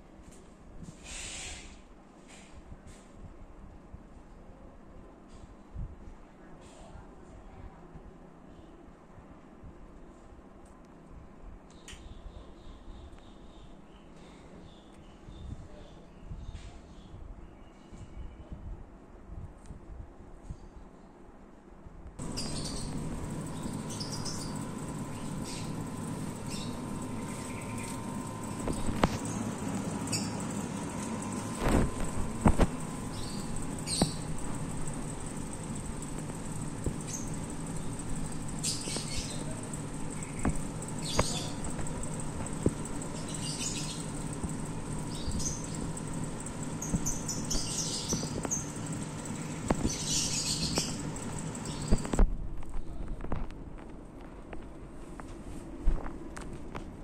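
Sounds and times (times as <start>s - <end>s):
air conditioner unit humming: 0.0s - 57.0s
small birds chirping: 22.2s - 52.2s.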